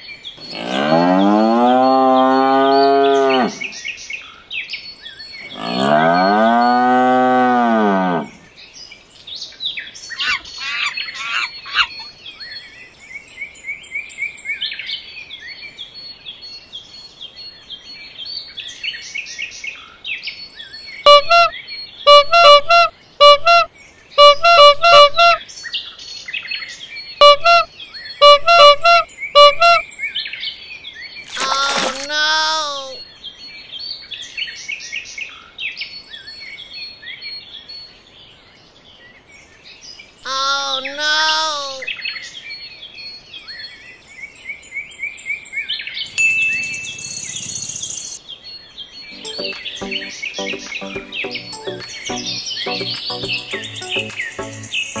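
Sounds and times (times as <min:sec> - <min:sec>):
birds chirping: 0:00.4 - 0:03.9, 0:45.9 - 0:55.0
cow mooing: 0:00.5 - 0:03.7, 0:05.5 - 0:08.4
short loud beeping tones: 0:21.1 - 0:21.5, 0:22.1 - 0:25.4, 0:27.2 - 0:27.6, 0:28.2 - 0:29.8, 0:49.2 - 0:55.0.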